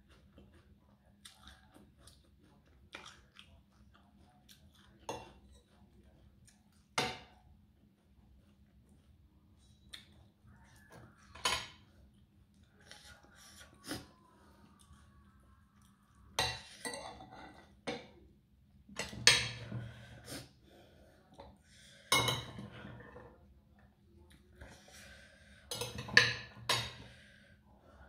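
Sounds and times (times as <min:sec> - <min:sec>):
cutlery clinking on a ceramic plate: 0:11.3 - 0:11.8, 0:16.4 - 0:18.1, 0:19.0 - 0:19.8, 0:22.1 - 0:23.0, 0:25.7 - 0:27.0.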